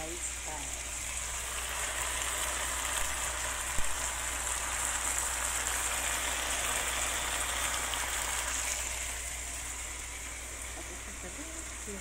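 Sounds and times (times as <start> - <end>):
eggplant sizzling in a wok: 0.0 - 12.0.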